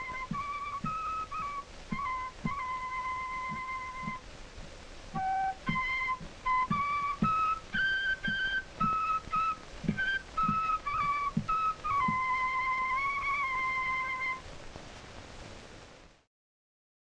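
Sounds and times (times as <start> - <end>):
notched flute melody: 0.0 - 4.4, 5.1 - 14.5
soft low drum thumps: 0.0 - 15.6
film soundtrack hiss: 0.0 - 16.3.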